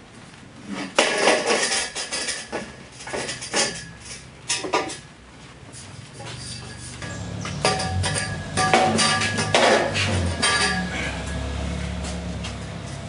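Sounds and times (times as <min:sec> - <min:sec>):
metal tube clanking: 0:01.0 - 0:05.1, 0:06.2 - 0:12.2.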